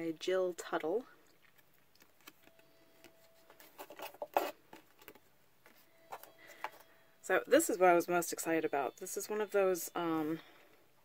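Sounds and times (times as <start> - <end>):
paper and box rustling: 2.0 - 6.9.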